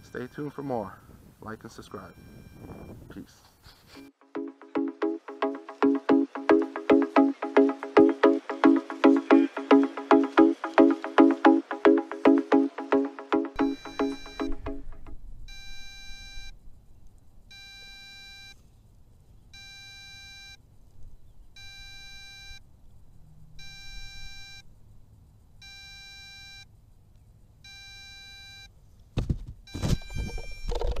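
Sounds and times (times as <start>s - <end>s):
electronic beeps: 1.9s - 3.0s, 4.7s - 16.5s, 29.7s - 31.0s
rustling: 28.9s - 31.0s.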